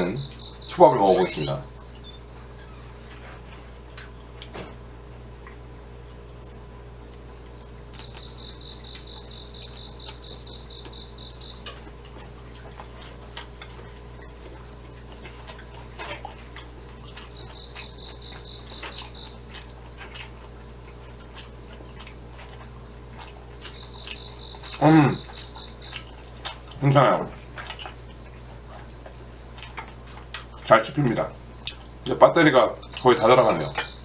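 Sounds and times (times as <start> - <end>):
cricket chirping: 0.0 - 2.2, 7.5 - 12.7, 16.0 - 20.9, 21.5 - 30.0, 30.7 - 34.0
soft chewing with mouth clicks: 0.2 - 30.8, 31.4 - 32.2, 32.8 - 34.0.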